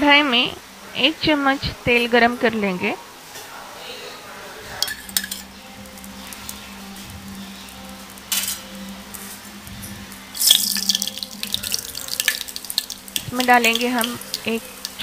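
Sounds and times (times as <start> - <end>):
hot oil sizzling: 4.8 - 15.0
seeds crackling and spattering in oil: 10.3 - 15.0.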